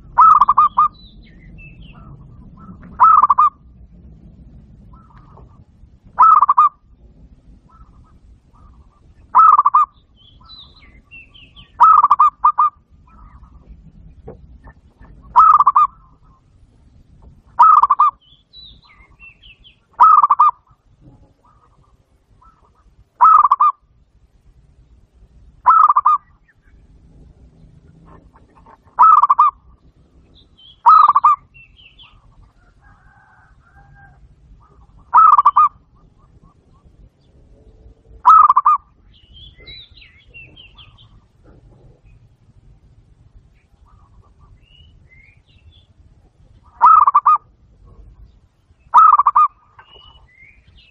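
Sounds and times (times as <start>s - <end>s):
dove cooing: 0.0s - 3.7s, 4.8s - 6.8s, 7.5s - 13.9s, 14.6s - 16.5s, 17.5s - 18.2s, 20.0s - 23.8s, 25.6s - 26.3s, 27.6s - 29.8s, 30.4s - 42.6s, 46.6s - 48.2s, 48.9s - 50.3s.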